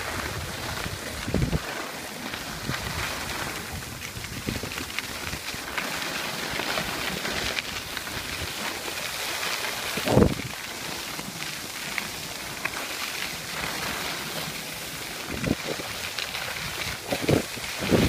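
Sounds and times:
wind on microphone: 0.0s - 5.6s, 9.8s - 10.6s, 15.2s - 18.0s
skis sliding on snow: 0.0s - 18.0s.

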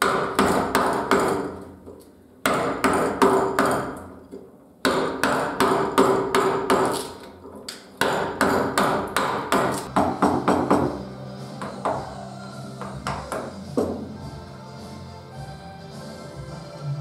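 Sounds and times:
mallet knocking carving gouge: 0.0s - 1.7s, 2.4s - 4.1s, 4.8s - 7.2s, 8.0s - 11.0s, 12.8s - 14.1s.

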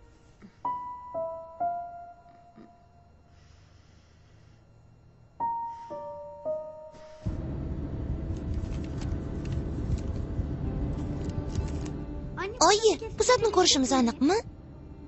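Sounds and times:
sparse sad piano notes: 0.0s - 3.2s, 5.4s - 8.2s
dense low rumble: 7.2s - 15.0s.

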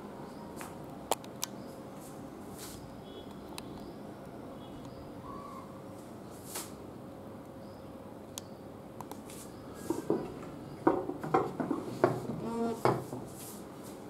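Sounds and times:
dress form knocking and clattering: 9.9s - 13.3s.

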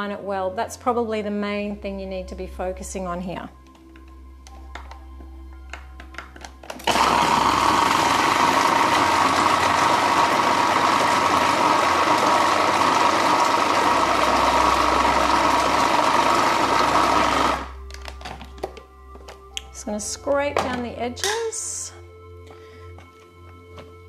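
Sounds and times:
food processor whining: 6.8s - 17.8s.

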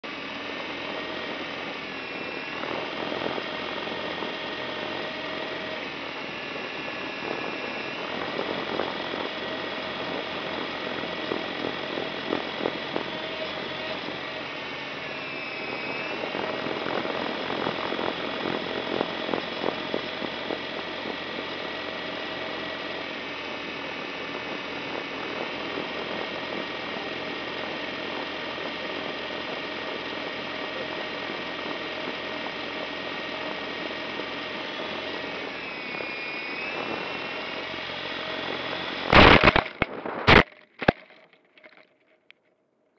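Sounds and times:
drone motors whining: 0.0s - 41.8s
crackling and rattling: 39.1s - 42.4s.

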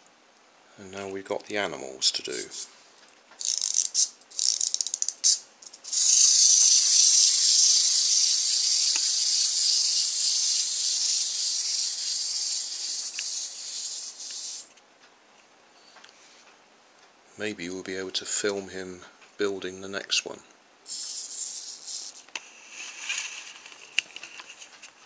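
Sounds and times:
ratcheting winding clicks: 3.4s - 14.7s, 20.9s - 22.2s
spring motor whirring: 3.4s - 14.7s, 20.9s - 22.2s.

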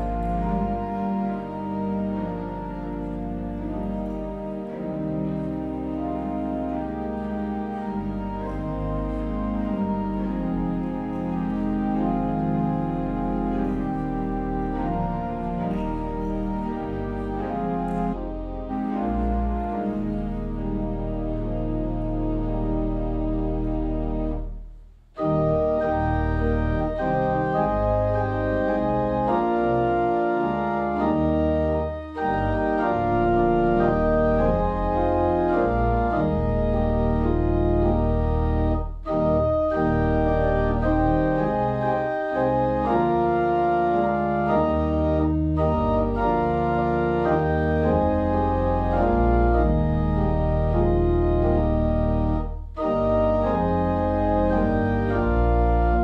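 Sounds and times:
organ playing sustained chords: 0.0s - 56.0s.

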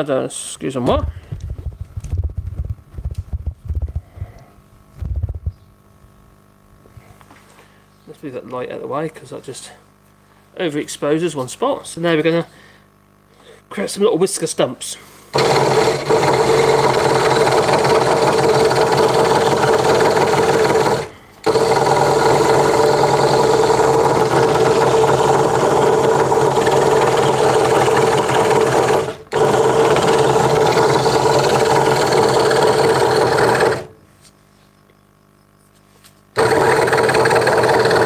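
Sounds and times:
scroll saw cutting wood: 15.3s - 34.0s, 36.4s - 38.0s.

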